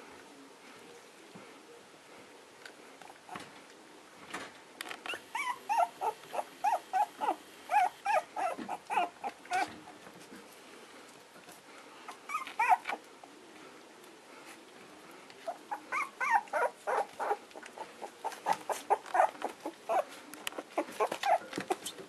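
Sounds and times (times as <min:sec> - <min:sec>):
puppies yipping and whining: 0:05.1 - 0:09.8, 0:12.3 - 0:13.0, 0:15.5 - 0:22.0.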